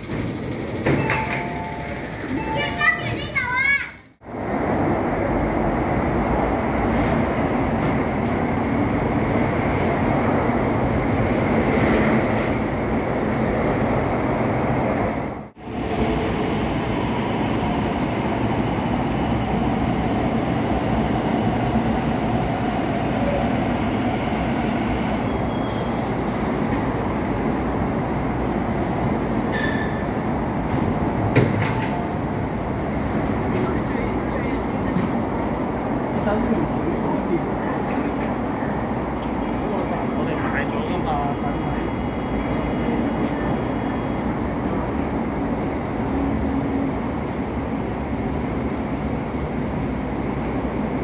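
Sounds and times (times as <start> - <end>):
electric train rumbling past: 0.0 - 51.0
train wheel squeals: 25.2 - 26.4, 27.6 - 28.2, 29.5 - 30.1.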